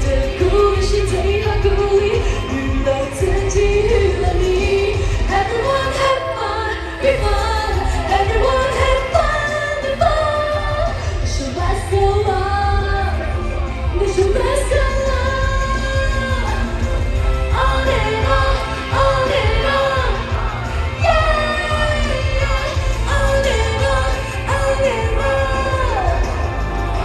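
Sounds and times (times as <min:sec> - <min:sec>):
live band through pa: 0:00.0 - 0:27.0
heavy bass: 0:07.0 - 0:27.0.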